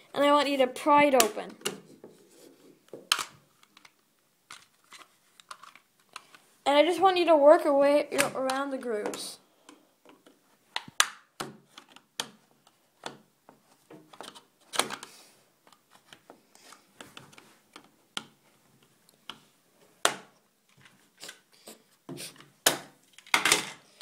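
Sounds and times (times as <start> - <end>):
plastic clips clicking and snapping: 3.0 - 6.4, 8.2 - 13.2.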